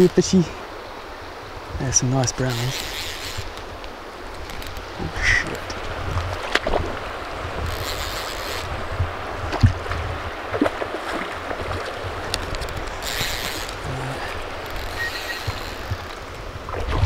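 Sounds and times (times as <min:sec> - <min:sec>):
river water flowing: 0:00.0 - 0:17.0
fishing line hissing rush: 0:00.3 - 0:05.6, 0:07.6 - 0:08.9, 0:12.8 - 0:16.3.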